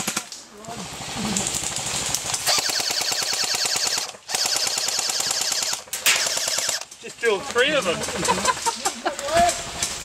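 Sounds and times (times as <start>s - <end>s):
airsoft gun firing full auto: 2.4s - 6.9s.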